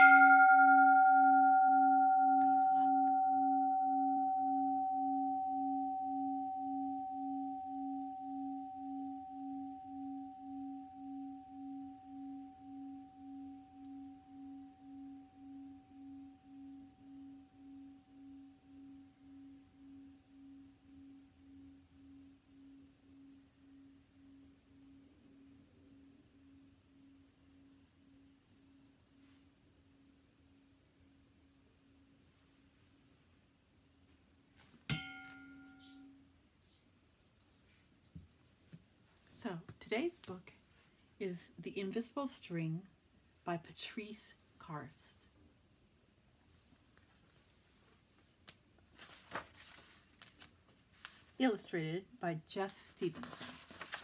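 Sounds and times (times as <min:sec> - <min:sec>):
singing bowl ringing: 0:00.0 - 0:30.1, 0:34.9 - 0:36.2.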